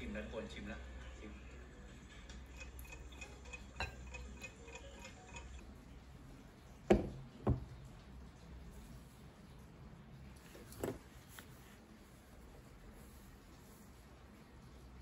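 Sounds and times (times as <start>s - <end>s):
faint regular ticking: 2.3s - 8.9s
cup knocking on wooden coaster: 6.9s - 7.7s.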